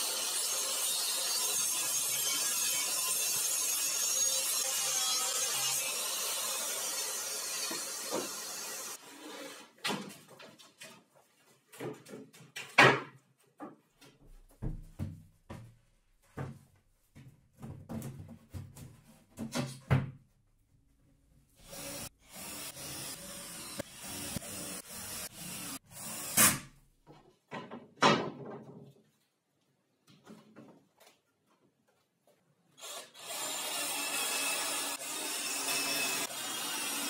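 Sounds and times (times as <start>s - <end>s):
circular saw cutting plywood: 0.0s - 9.8s, 32.8s - 37.0s
wooden panels knocking and thumping: 11.7s - 20.3s, 27.0s - 29.1s.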